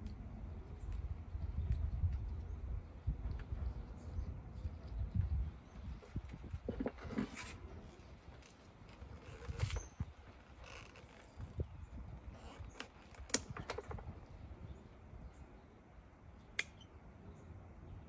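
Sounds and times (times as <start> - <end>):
rustling of gloves and leaves: 0.8 - 14.4
scissors snipping branches: 16.4 - 16.9.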